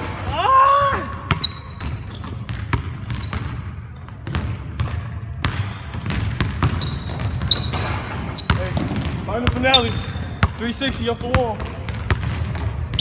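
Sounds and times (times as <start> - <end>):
basketball bouncing on hardwood floor: 1.2 - 13.0
sneaker squeaks on floor: 1.3 - 4.0, 5.6 - 11.5.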